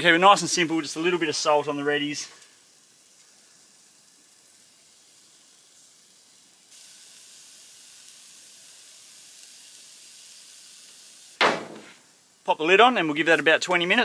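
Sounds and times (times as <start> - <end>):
fish smoker hissing and sizzling: 0.0 - 14.0
sharp knock: 11.4 - 12.0.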